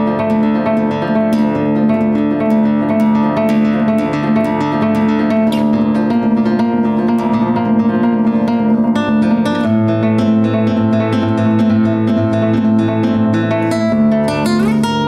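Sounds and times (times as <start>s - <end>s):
solo classical guitar: 0.0s - 15.0s.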